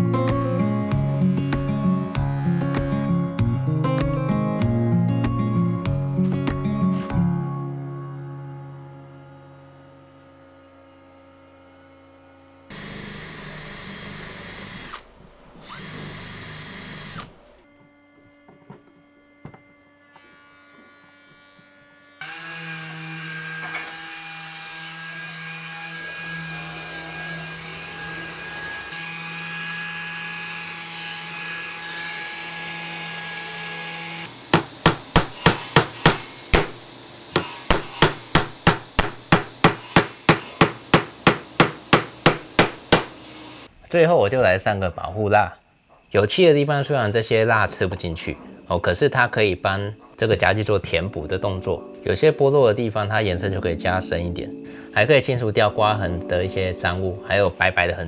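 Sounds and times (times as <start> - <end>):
motor-driven tool running: 12.7 - 17.5
power tool bursts: 12.7 - 17.5, 34.0 - 43.7.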